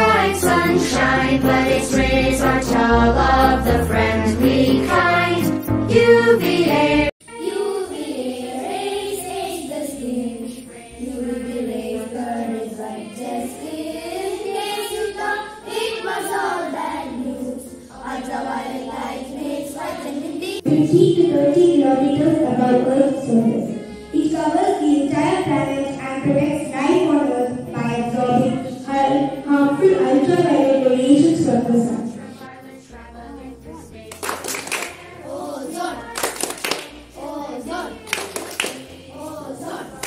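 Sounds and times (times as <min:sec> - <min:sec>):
children singing into a microphone: 0:00.0 - 0:40.0
child's voice at a microphone: 0:24.2 - 0:31.9.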